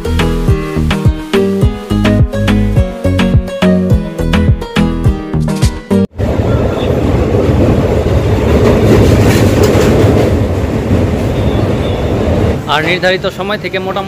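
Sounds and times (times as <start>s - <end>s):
train rumbling across a steel bridge: 6.1s - 14.0s.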